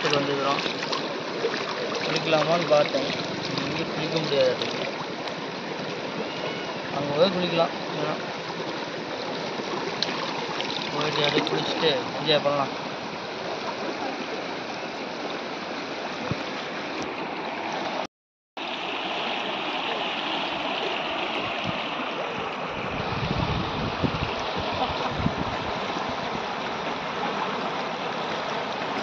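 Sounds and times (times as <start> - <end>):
river rushing over rocks: 0.0 - 18.0, 18.6 - 29.0.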